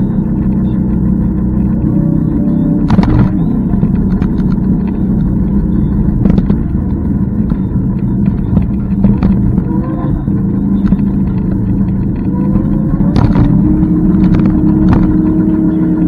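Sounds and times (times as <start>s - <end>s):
electric scooter rumble: 0.0s - 16.0s
wind noise on microphone: 2.8s - 15.6s.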